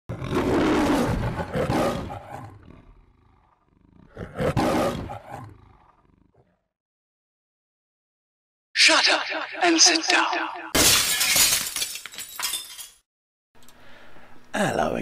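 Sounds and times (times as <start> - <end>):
lion roaring: 0.1 - 6.7.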